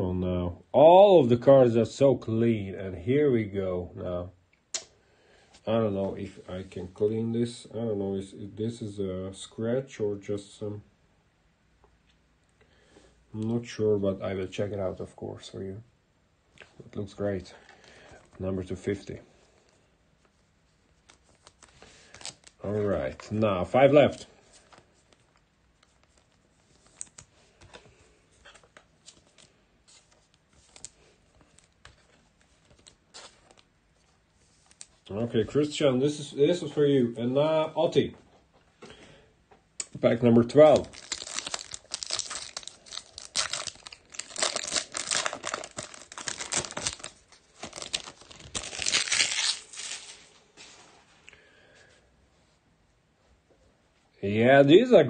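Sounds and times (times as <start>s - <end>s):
trading cards rustling and ticking: 20.9s - 35.0s, 40.1s - 50.2s
foil wrapper crinkling: 21.0s - 23.4s, 40.1s - 50.4s.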